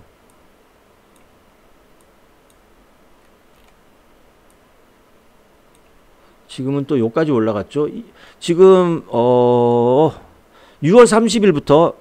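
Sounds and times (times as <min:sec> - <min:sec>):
low room hiss: 0:00.0 - 0:12.0
computer mouse clicks: 0:01.1 - 0:01.3, 0:03.2 - 0:03.8.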